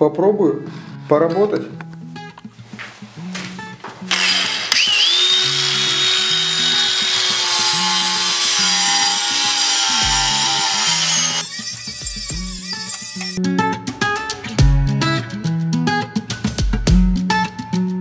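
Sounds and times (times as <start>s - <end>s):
angle grinder sanding wood: 4.1s - 13.4s
background music with bass: 12.0s - 18.0s.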